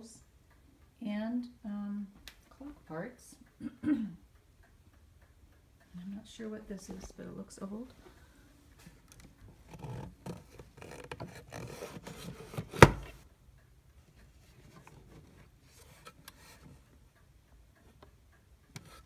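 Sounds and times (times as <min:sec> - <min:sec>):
hands scraping wooden case: 0:09.7 - 0:13.2.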